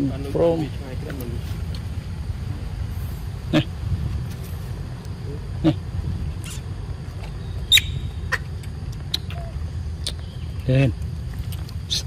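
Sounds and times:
steady low rumble: 0:00.0 - 0:12.0
macaque call: 0:03.4 - 0:03.8, 0:07.6 - 0:10.4.

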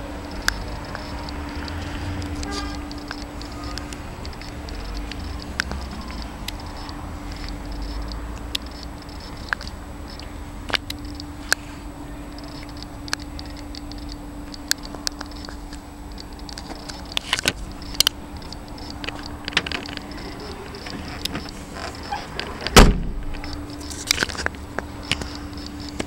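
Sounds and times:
steady low hum: 0:00.0 - 0:26.0
light clicks and rattles: 0:12.3 - 0:26.0.

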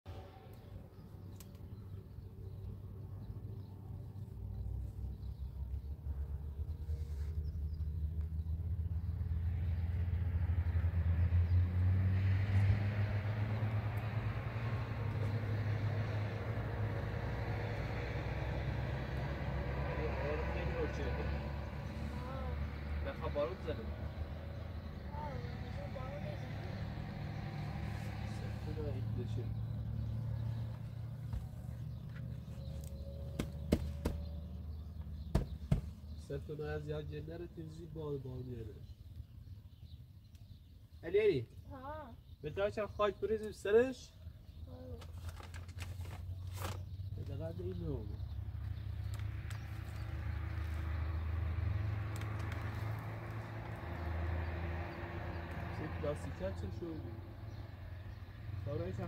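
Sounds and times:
engine humming: 0:00.1 - 0:39.0, 0:44.6 - 0:59.0
sharp knocks: 0:33.3 - 0:34.3, 0:35.3 - 0:36.0.

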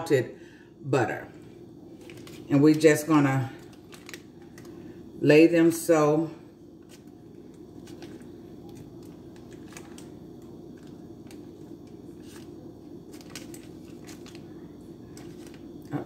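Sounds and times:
steady low hum: 0:00.0 - 0:16.0
paper rustling: 0:02.0 - 0:02.5, 0:10.8 - 0:15.6.

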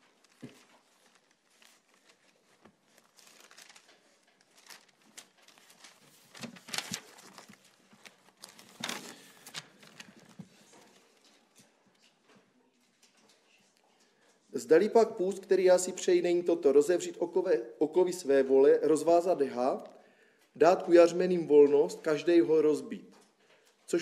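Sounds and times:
page turns: 0:00.0 - 0:12.2
paper pages rustling: 0:00.0 - 0:14.4.

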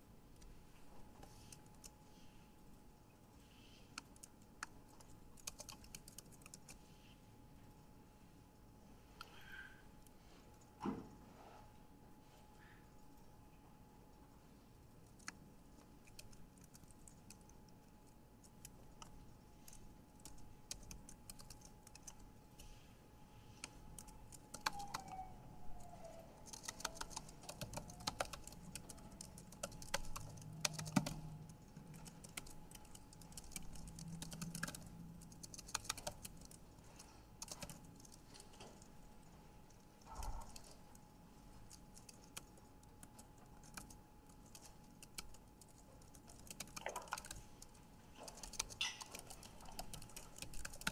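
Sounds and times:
faint steady whine: 0:00.0 - 0:50.9
typing on computer keyboard: 0:03.9 - 0:06.8, 0:15.0 - 0:22.3, 0:23.5 - 0:38.9, 0:41.7 - 0:50.9.

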